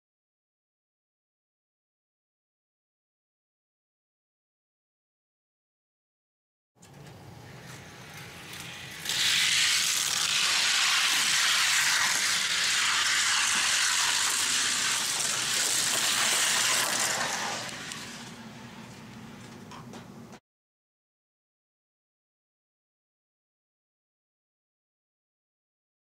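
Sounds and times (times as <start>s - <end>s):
toy cars rolling on track: 7.6s - 18.4s.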